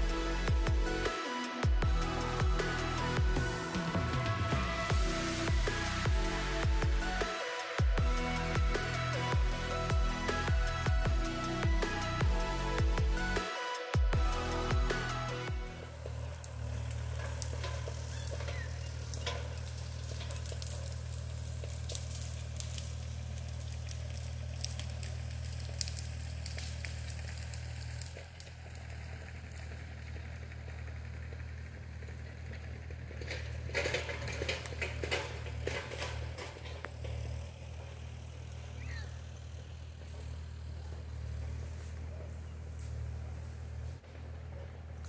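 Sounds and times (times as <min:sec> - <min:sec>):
engine droning: 0:00.0 - 0:45.0
crackling and snapping: 0:15.1 - 0:44.0.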